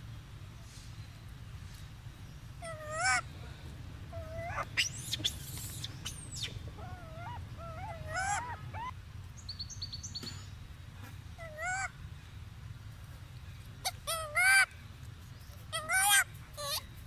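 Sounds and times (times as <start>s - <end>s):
baby monkey squeaky calls: 2.6s - 3.2s, 4.1s - 9.0s, 11.4s - 11.9s, 13.8s - 14.7s, 15.7s - 16.9s.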